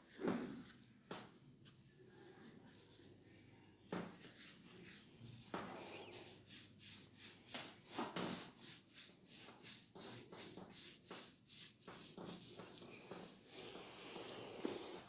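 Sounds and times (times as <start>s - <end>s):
hands rubbing hair: 0.1s - 3.2s, 3.9s - 15.0s.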